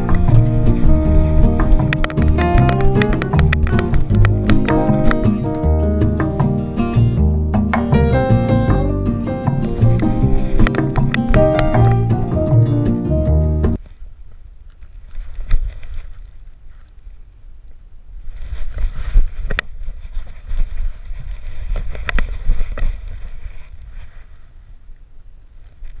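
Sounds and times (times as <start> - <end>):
music track: 0.0 - 13.8
wind buffeting microphone: 0.0 - 13.8.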